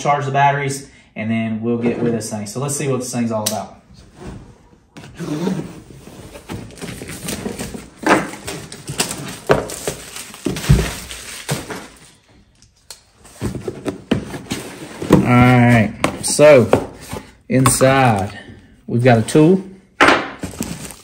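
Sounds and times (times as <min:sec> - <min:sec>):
cardboard box rustling and scraping: 0:05.5 - 0:11.7, 0:13.3 - 0:15.8.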